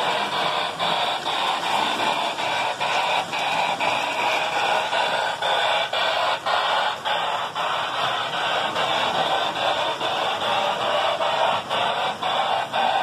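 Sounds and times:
hissing electronic chuffs: 0.0 - 13.0.

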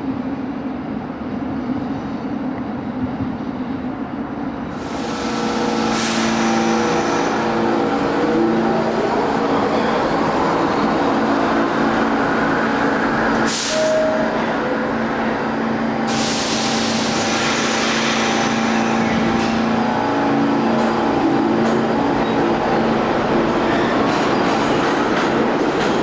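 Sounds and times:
subway train hum: 0.0 - 26.0
air hissing: 4.8 - 7.9, 13.4 - 14.1, 16.0 - 19.7.

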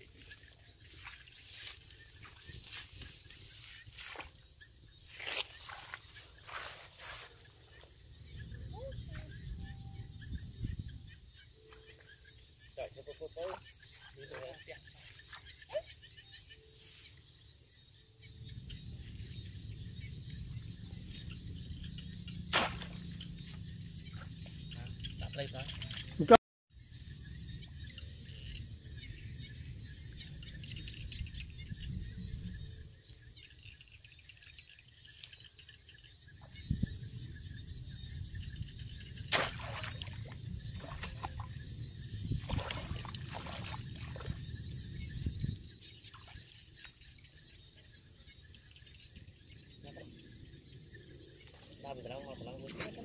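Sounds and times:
basket splashing into water: 22.5 - 23.2, 39.3 - 41.5, 42.4 - 44.4.

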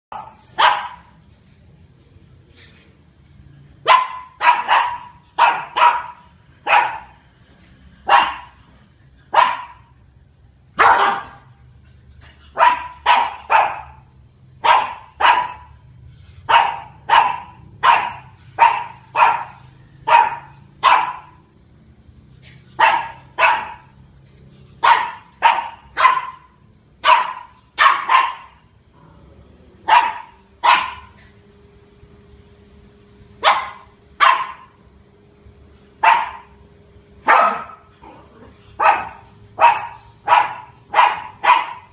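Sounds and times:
puppy barking: 0.1 - 1.2, 3.8 - 7.2, 8.0 - 8.6, 9.3 - 10.0, 10.8 - 11.6, 12.5 - 21.5, 22.5 - 24.0, 24.7 - 28.7, 29.8 - 31.3, 33.4 - 34.8, 36.0 - 36.6, 37.2 - 41.9.

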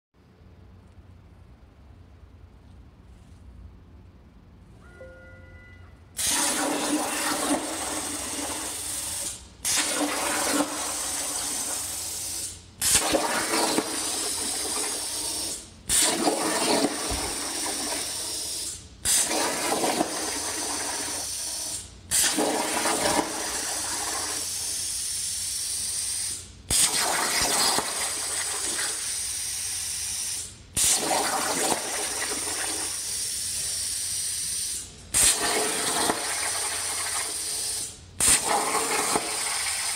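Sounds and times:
arc relighting burst: 6.1 - 18.3, 26.7 - 39.9
plasma cutter arc hissing: 6.2 - 39.9.

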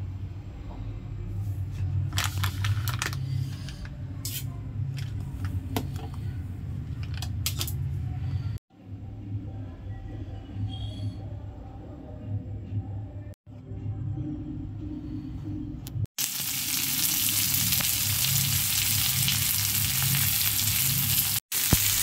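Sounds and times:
low kitchen hum: 0.0 - 22.0
plastic packet crinkling: 2.1 - 3.3.

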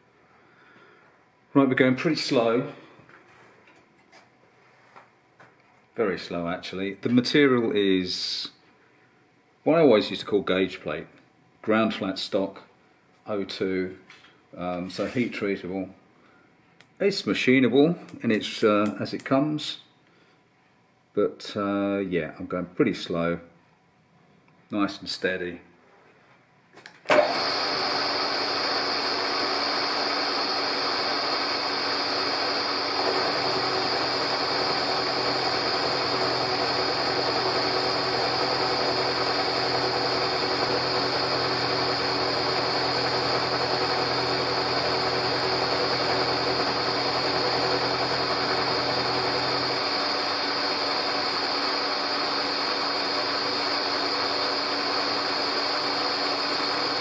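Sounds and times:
milling machine whining: 27.1 - 57.0.

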